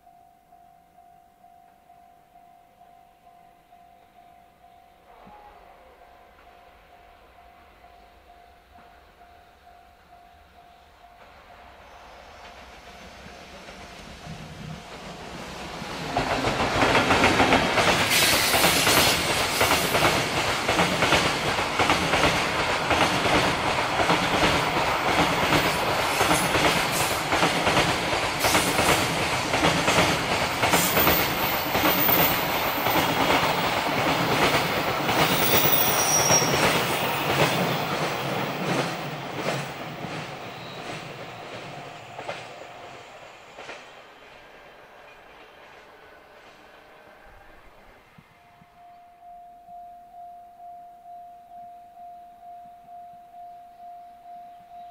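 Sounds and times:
freight train passing: 0:02.7 - 0:49.8
high wheel squeals: 0:35.2 - 0:37.8, 0:40.4 - 0:43.6.

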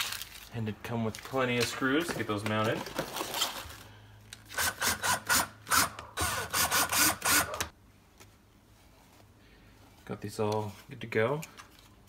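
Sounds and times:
cordless drill driving screws: 0:04.5 - 0:07.7.

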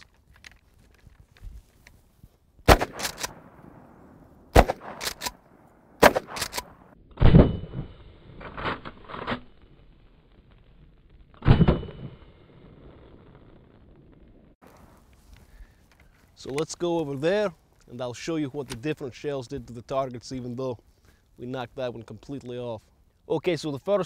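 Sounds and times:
shotgun shots: 0:02.6 - 0:08.0
shotgun pump clacking: 0:02.9 - 0:03.4, 0:04.8 - 0:05.4, 0:06.3 - 0:06.8.

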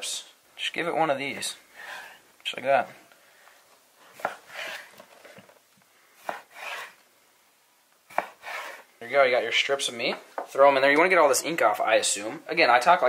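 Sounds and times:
knife cutting on cutting board: 0:04.2 - 0:04.9, 0:06.2 - 0:07.0, 0:08.1 - 0:08.9.

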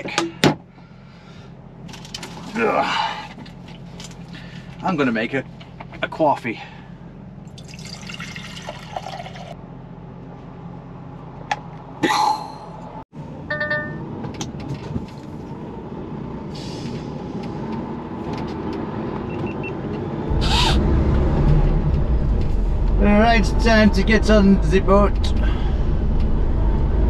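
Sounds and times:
water poured into kettle: 0:07.5 - 0:09.6
air brake hiss: 0:16.5 - 0:17.2
diesel truck engine running: 0:18.9 - 0:27.0.

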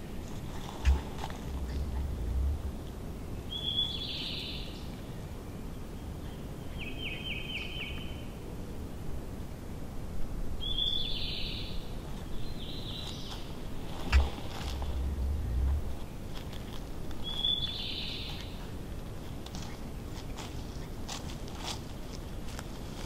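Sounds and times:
steady background noise: 0:00.0 - 0:23.0
small songbirds singing: 0:17.2 - 0:18.7.

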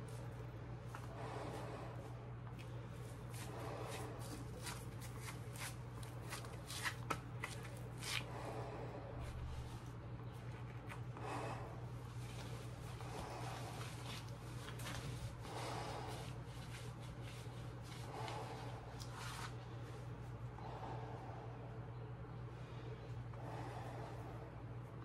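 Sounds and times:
gloves rustling: 0:00.0 - 0:11.2, 0:11.9 - 0:20.4
steady low hum: 0:00.0 - 0:25.0.

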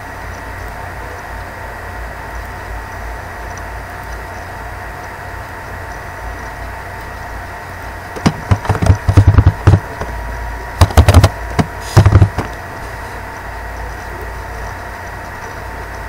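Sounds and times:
steady background hum: 0:00.0 - 0:16.0
computer keyboard typing: 0:08.2 - 0:10.1, 0:10.8 - 0:12.6.

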